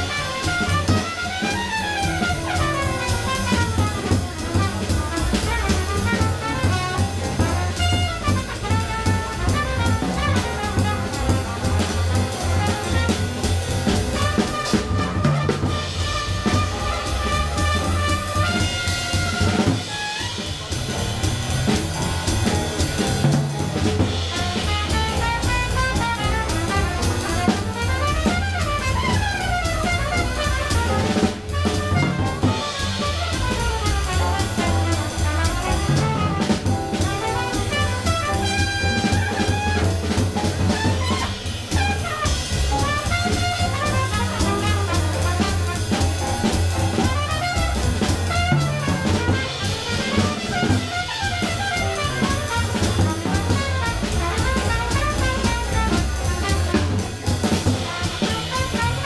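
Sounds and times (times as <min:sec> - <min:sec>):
double bass: 0:00.0 - 0:59.0
drum kit with cymbals: 0:00.0 - 0:59.0
piano: 0:00.0 - 0:59.0
trumpet playing quick runs: 0:00.0 - 0:59.0.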